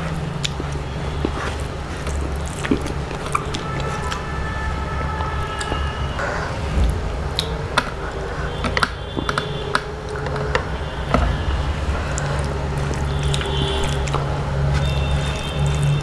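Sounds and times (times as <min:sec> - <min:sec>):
fingers squelching wet rice: 0:00.0 - 0:06.2, 0:12.0 - 0:16.0
steady low hum: 0:00.0 - 0:16.0.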